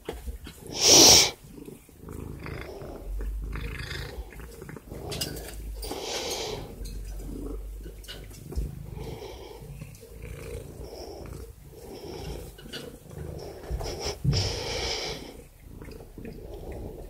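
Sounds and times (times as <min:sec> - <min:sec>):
cat purring: 0:00.0 - 0:17.0.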